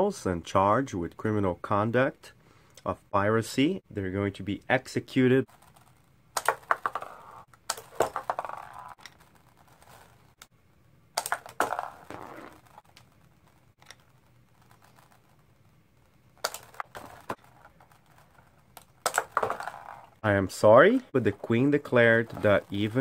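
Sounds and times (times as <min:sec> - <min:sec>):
plastic toy figures clattering: 0:05.5 - 0:10.4, 0:16.4 - 0:20.2.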